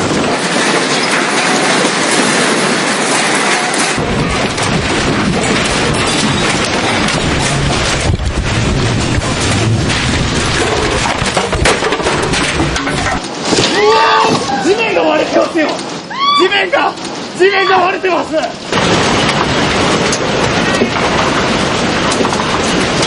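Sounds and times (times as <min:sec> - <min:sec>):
building contents rattling and clattering: 0:00.0 - 0:23.0
deep rumble: 0:02.1 - 0:13.3.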